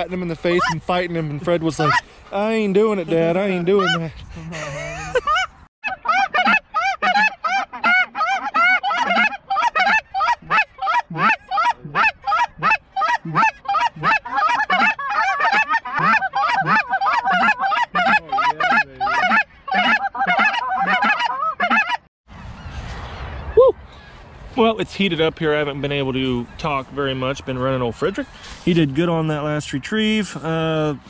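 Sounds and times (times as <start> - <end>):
goose call honks and clucks: 0.0 - 22.1.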